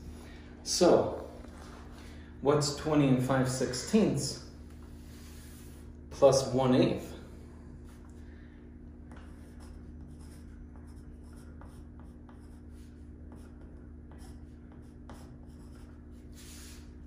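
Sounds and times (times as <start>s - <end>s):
steady low hum: 0.0s - 17.0s
pencil scratching on wall: 9.1s - 17.0s.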